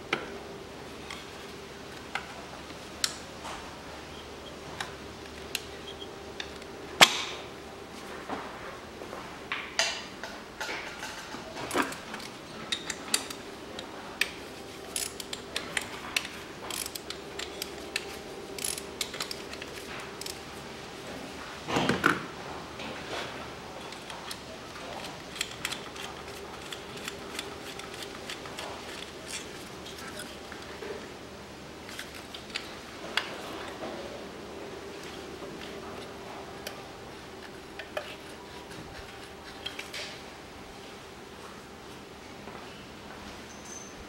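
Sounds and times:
clicks of tools and plastic clips: 0:10.6 - 0:20.4, 0:23.8 - 0:30.9.

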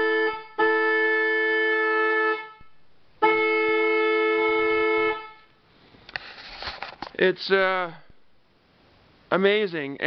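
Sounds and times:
car horns two-note chord: 0:00.0 - 0:05.6.

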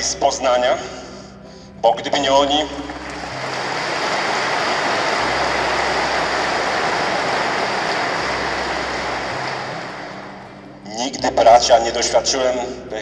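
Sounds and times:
audience applauding: 0:02.7 - 0:10.8.

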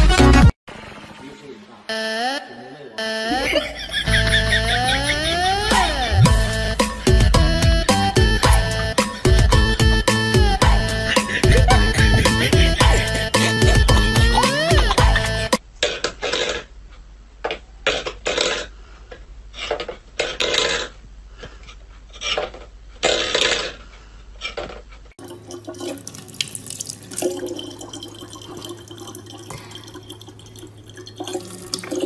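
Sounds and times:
kitchen tap running: 0:25.2 - 0:32.0.

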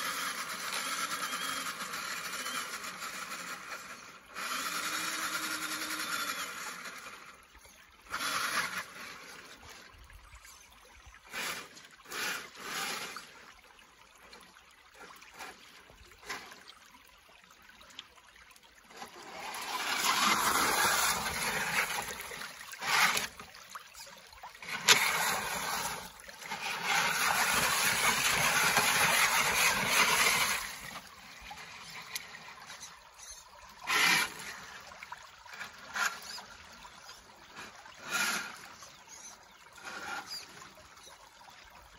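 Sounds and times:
toy car motor whirring: 0:00.0 - 0:09.8, 0:11.2 - 0:13.5, 0:18.9 - 0:34.8, 0:35.5 - 0:41.2
tyres splashing through water: 0:08.0 - 0:09.9, 0:17.5 - 0:41.1.

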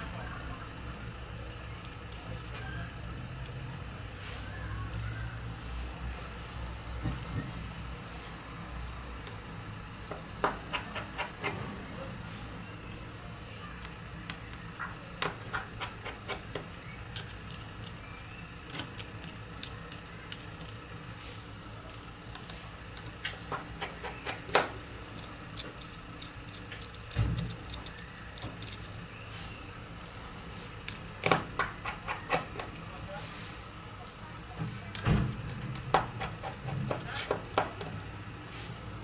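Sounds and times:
screwdriver clicking on metal: 0:21.9 - 0:29.0, 0:30.0 - 0:32.9.

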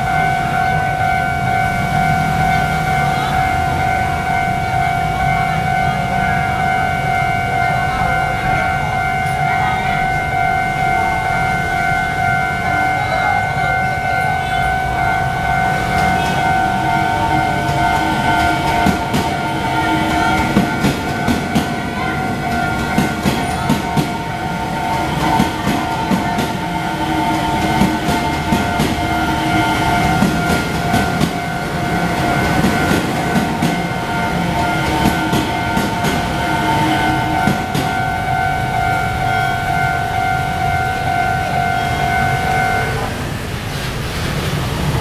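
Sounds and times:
crossing warning bell ringing: 0:00.0 - 0:45.0
train rumble: 0:00.0 - 0:45.0
train wheels clacking over rail joints: 0:15.5 - 0:38.5.

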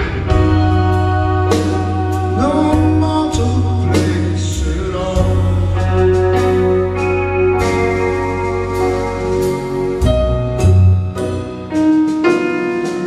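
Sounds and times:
live rock band: 0:00.0 - 0:13.0
man singing: 0:01.6 - 0:06.7.

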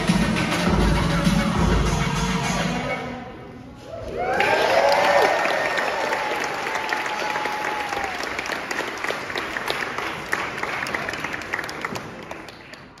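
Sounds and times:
audience applauding: 0:04.2 - 0:13.0.

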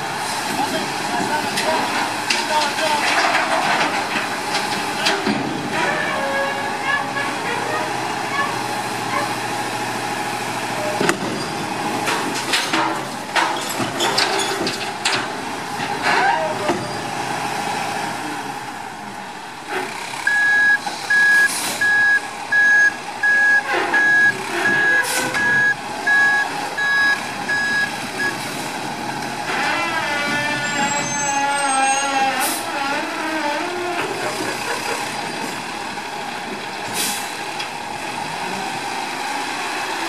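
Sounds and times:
garbage truck engine running: 0:00.0 - 0:40.0
reversing alarm beeping: 0:20.2 - 0:28.4.

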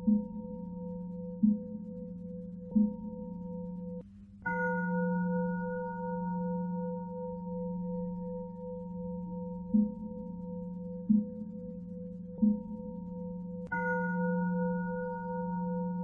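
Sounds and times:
low bell ringing: 0:02.8 - 0:08.6, 0:13.6 - 0:16.0.

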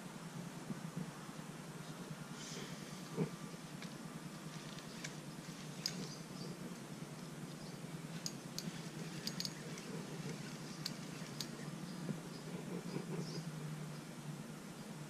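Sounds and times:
reel clicks: 0:08.2 - 0:09.9.

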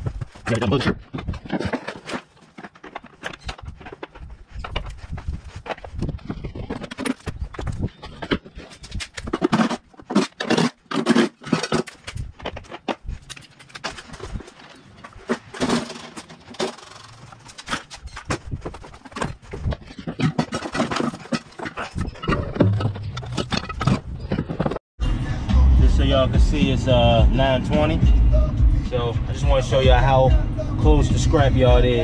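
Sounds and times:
metal parts dragged: 0:00.0 - 0:24.8
scrap metal clanking: 0:00.0 - 0:24.8.

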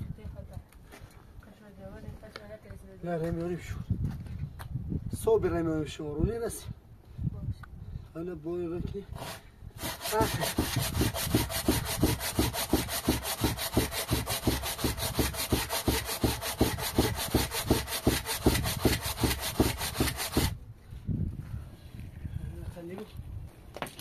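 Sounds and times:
rhythmic rasping strokes: 0:09.2 - 0:20.5.

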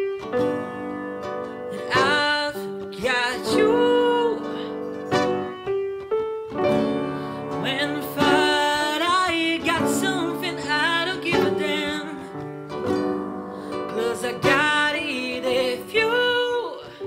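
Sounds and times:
acoustic guitar: 0:00.0 - 0:17.0
piano: 0:00.0 - 0:17.0
man singing pop ballad: 0:07.6 - 0:12.3, 0:13.8 - 0:16.9.

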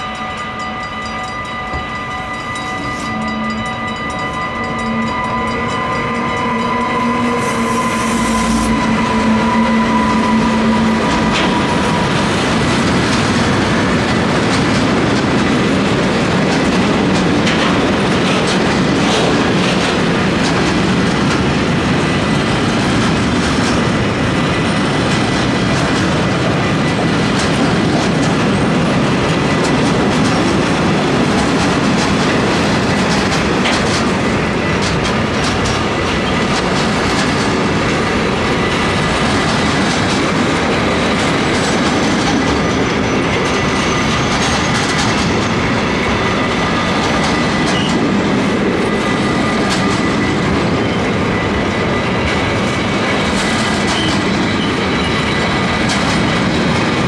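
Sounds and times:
train wheels rumbling on rails: 0:00.0 - 0:57.0
wheels clicking over rail joints: 0:10.7 - 0:45.6.

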